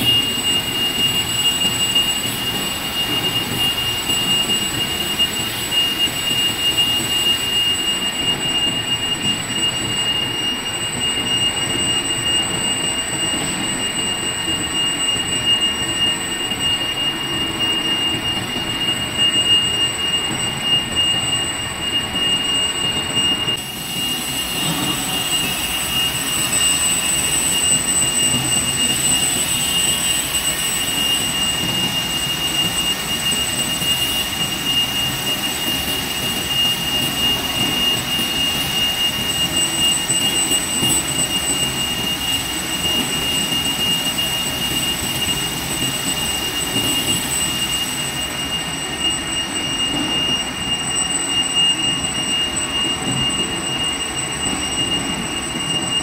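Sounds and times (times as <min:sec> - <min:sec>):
high-pitched whine: 0:00.0 - 0:56.0
lathe machining steel: 0:23.6 - 0:54.2.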